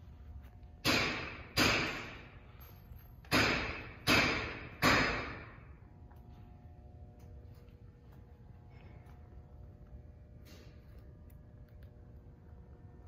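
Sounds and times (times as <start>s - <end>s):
sharp echoing bangs: 0.8s - 2.4s, 3.3s - 5.7s.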